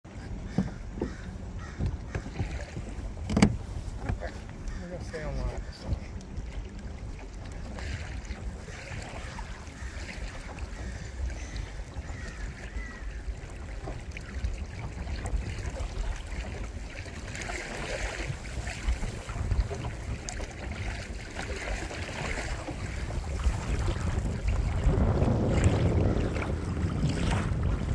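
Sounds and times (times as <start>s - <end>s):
small waves lapping: 0.0s - 27.9s
steady low rumble: 22.9s - 27.9s.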